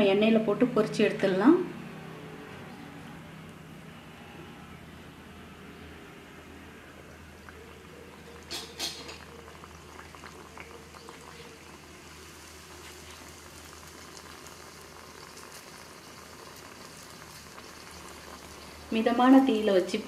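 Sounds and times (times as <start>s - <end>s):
dough deep-frying in oil: 6.3s - 20.0s.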